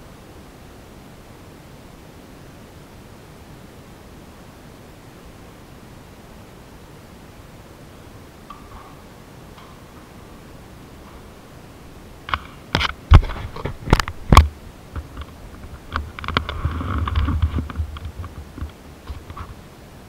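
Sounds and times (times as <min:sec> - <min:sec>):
sharp clicks and knocks: 0:08.5 - 0:10.4, 0:12.2 - 0:19.6
rough scraping rustle: 0:08.6 - 0:19.7.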